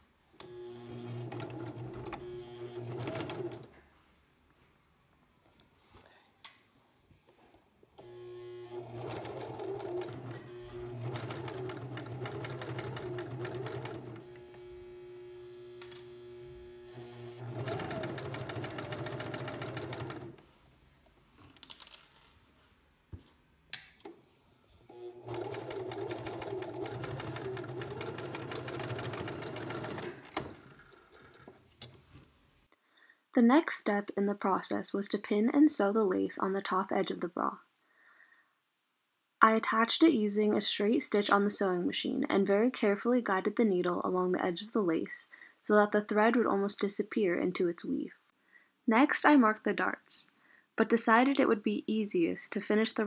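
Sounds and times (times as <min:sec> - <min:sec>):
sewing machine stitching: 0:00.4 - 0:03.8, 0:08.0 - 0:14.7, 0:16.7 - 0:20.4, 0:24.9 - 0:31.9.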